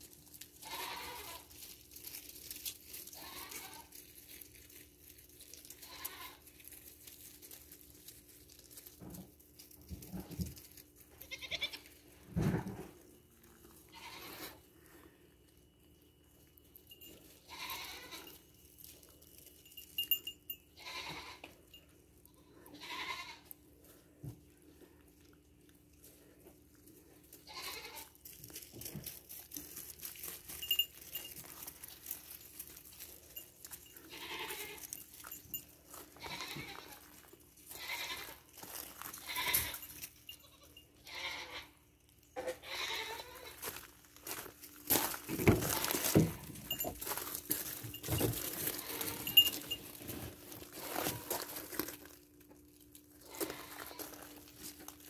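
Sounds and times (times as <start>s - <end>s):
rustling and crunching: 0.0s - 55.0s
goats bleating: 0.6s - 1.5s, 3.1s - 3.9s, 11.2s - 11.9s, 13.9s - 14.6s, 17.5s - 18.4s, 20.8s - 21.5s, 22.4s - 23.5s, 27.4s - 28.2s, 34.0s - 35.0s, 36.2s - 38.4s, 39.2s - 41.8s, 42.5s - 43.7s, 53.2s - 54.2s.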